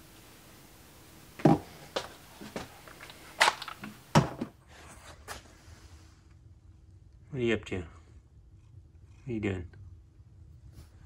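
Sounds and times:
short knocks and thuds: 0:01.4 - 0:02.7, 0:03.8 - 0:04.5.

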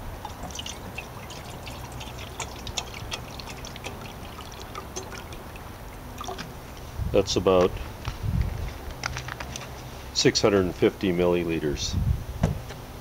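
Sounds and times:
water pouring into a metal pot: 0:00.0 - 0:06.6.

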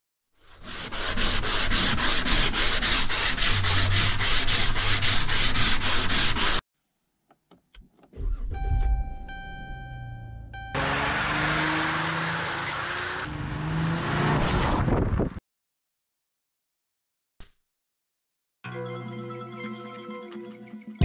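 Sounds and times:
hand sanding a panel: 0:00.4 - 0:06.6
brief low rumble: 0:08.2 - 0:10.4
electronic chime tone: 0:08.5 - 0:10.8.

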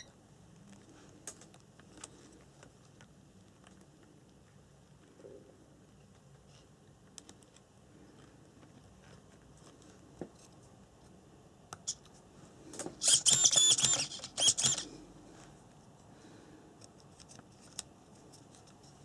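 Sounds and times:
loud rasping burst: 0:13.0 - 0:14.9.

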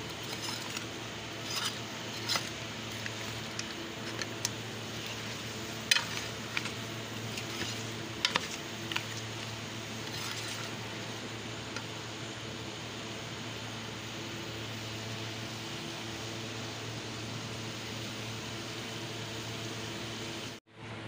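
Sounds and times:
metal spoon scraping a steel pan: 0:00.0 - 0:09.4, 0:10.0 - 0:10.8.

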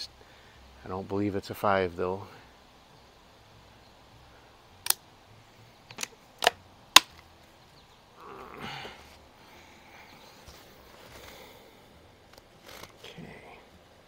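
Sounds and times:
air rifle action clicks: 0:04.8 - 0:05.0, 0:05.8 - 0:07.3
soft rustle: 0:07.1 - 0:14.0.

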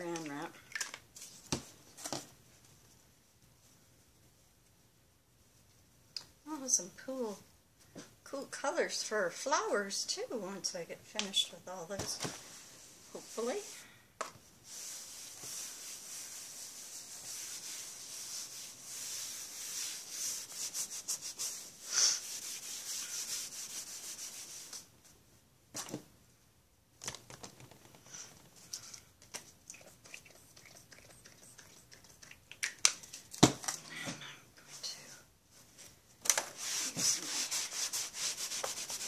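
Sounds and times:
wipe rubbing on plastic mat: 0:14.6 - 0:24.9, 0:36.5 - 0:39.0.

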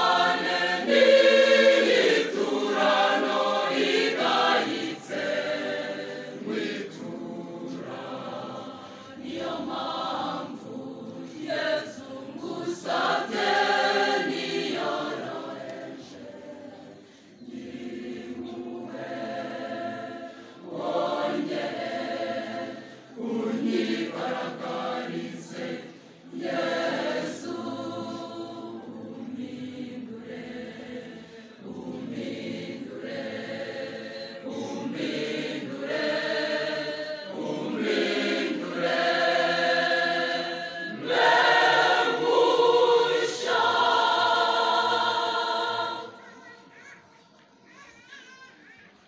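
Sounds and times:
choir singing a hymn: 0:00.0 - 0:47.0.

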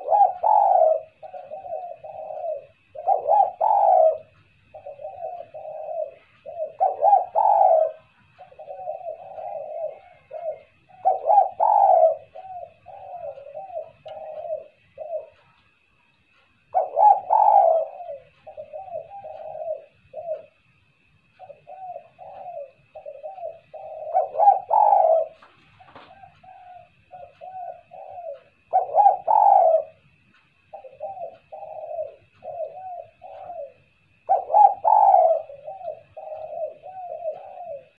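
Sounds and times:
dove cooing: 0:00.0 - 0:38.0.

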